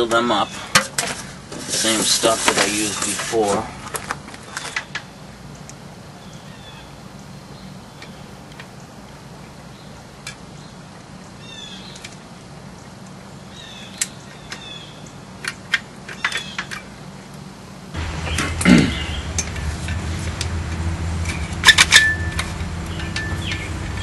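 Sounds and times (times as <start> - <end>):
steady low hum: 5.1 - 24.0
bird chirps: 18.2 - 19.4, 22.2 - 23.8.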